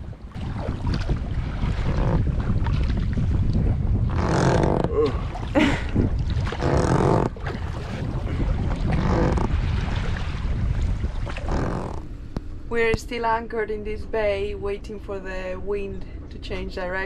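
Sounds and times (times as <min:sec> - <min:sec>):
oars stroking water: 0:00.0 - 0:13.4
wind buffeting the microphone: 0:00.0 - 0:16.8.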